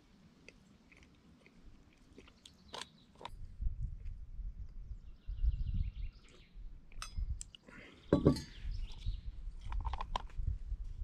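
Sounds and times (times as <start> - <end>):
soft chewing: 0.0 - 4.8.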